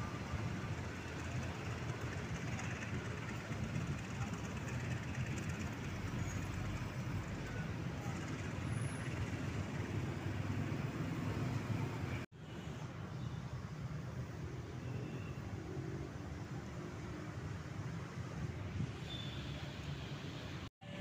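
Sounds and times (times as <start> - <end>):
diesel locomotive engine rumble: 0.0 - 12.3.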